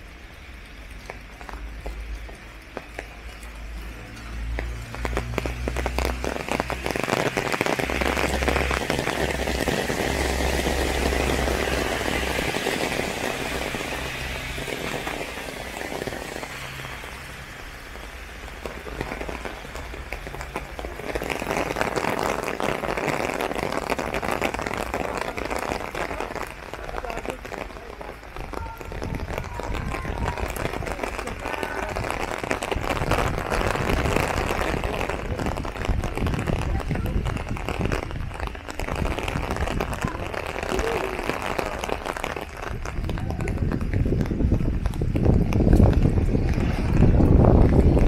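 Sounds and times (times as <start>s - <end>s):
heavy rain on an umbrella: 0.0s - 48.0s
low rumble: 42.9s - 48.0s.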